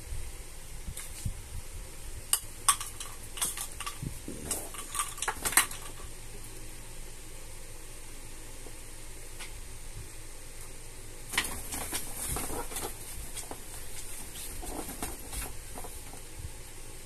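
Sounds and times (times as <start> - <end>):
background hiss: 0.0 - 17.0
cats scuffling: 2.6 - 6.5, 11.3 - 16.5.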